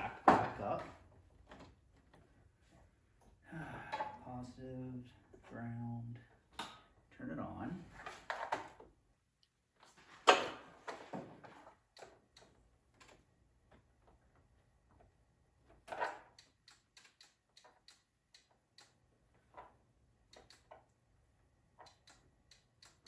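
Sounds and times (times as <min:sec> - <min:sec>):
faint clicks of key and controls: 0:21.7 - 0:23.0.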